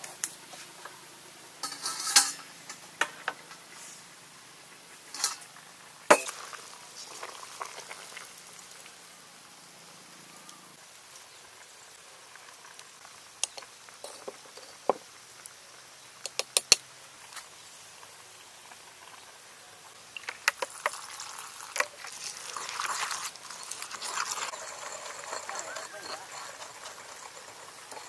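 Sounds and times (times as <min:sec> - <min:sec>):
pestle grinding in stone mortar: 0:20.5 - 0:28.0.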